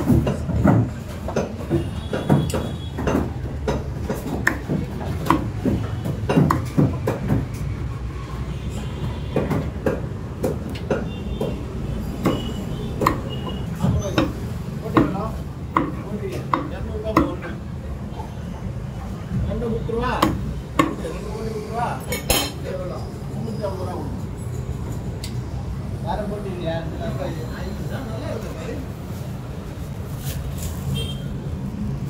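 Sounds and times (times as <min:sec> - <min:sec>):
cleaver chopping on wooden block: 0:00.1 - 0:07.5, 0:12.2 - 0:17.5, 0:20.2 - 0:21.0.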